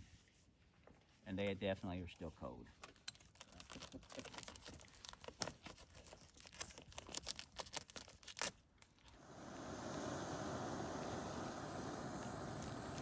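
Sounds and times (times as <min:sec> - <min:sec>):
steady outdoor hiss: 0:09.1 - 0:13.0
campfire crackling and popping: 0:09.2 - 0:13.0.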